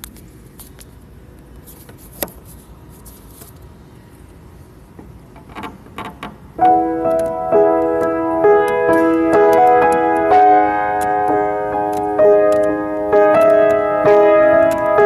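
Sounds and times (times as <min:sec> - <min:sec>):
handling clicks and rustles: 0:05.4 - 0:15.0
keyboard playing held chords: 0:06.6 - 0:15.0.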